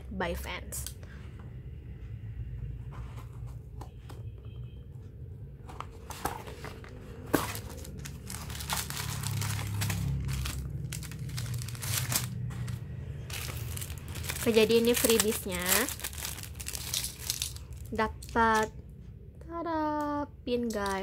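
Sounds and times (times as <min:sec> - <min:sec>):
paper packaging rustling: 0:05.7 - 0:18.7.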